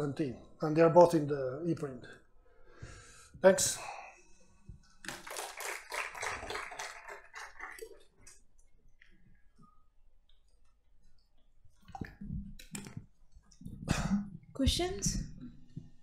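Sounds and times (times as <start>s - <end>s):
audience applauding: 5.0s - 8.3s.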